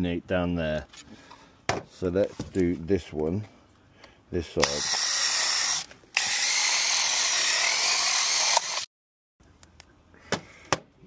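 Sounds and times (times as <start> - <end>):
cordless drill boring plastic: 4.6 - 8.9.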